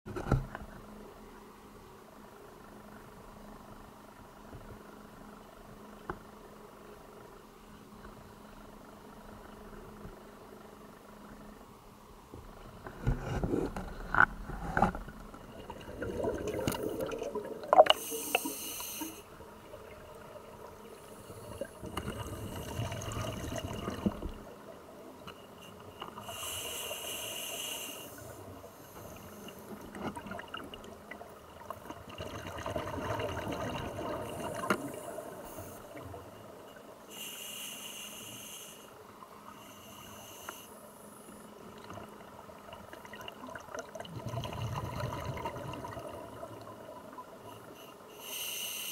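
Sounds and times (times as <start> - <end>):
bubbling exhalations: 15.6 - 18.6
regulator hissing inhalations: 17.9 - 19.3, 26.2 - 29.6, 37.1 - 41.1, 47.7 - 48.9.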